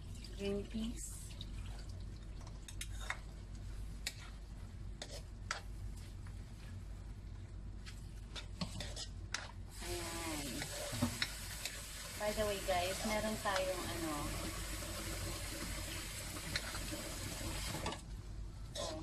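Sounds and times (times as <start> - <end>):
spoon scraping a wok: 5.0 - 5.7, 8.4 - 9.5, 10.6 - 11.8, 18.8 - 19.0
food sizzling: 8.9 - 18.0.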